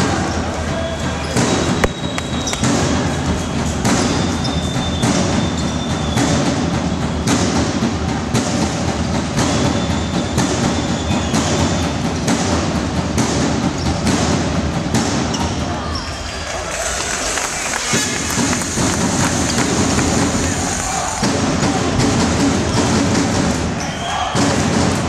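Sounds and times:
basketball hall noise: 0:00.0 - 0:25.0
sharp thumps: 0:01.7 - 0:02.9.

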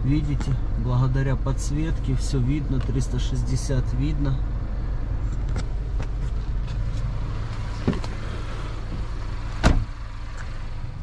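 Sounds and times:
low car hum: 0:00.0 - 0:11.0
car door shutting: 0:05.3 - 0:10.0.

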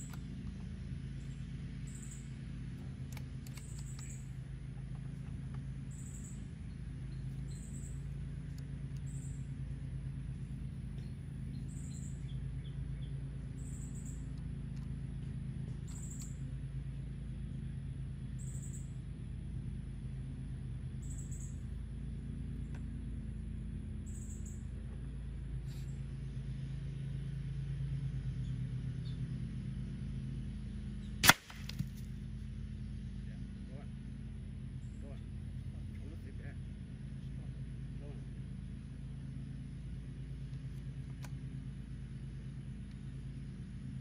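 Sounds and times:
steady low hum: 0:00.0 - 0:44.0
air rifle shot crack: 0:31.2 - 0:32.0.

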